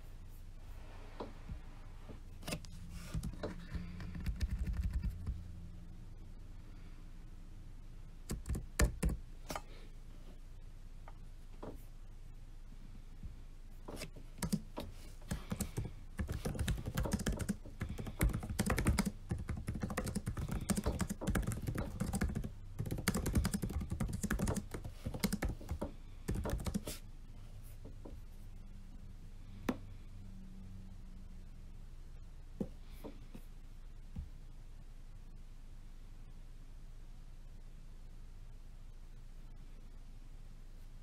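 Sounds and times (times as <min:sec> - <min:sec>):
typing on a keyboard: 0:03.1 - 0:05.4, 0:08.3 - 0:09.2, 0:14.4 - 0:14.6, 0:15.3 - 0:26.9.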